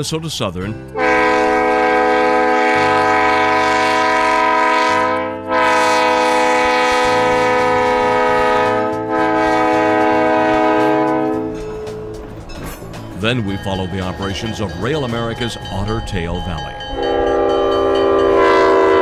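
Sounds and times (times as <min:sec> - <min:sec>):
locomotive air horn blasts: 0:00.9 - 0:12.3, 0:17.0 - 0:19.0.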